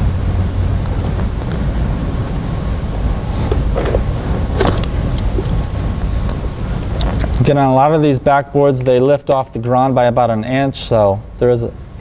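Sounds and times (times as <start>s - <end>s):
low room rumble: 0.0s - 12.0s
strap buckles clicking: 3.5s - 5.6s.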